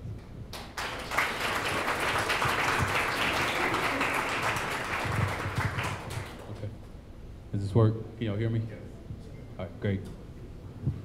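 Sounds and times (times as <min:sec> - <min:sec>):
audience applauding: 0:00.5 - 0:06.7.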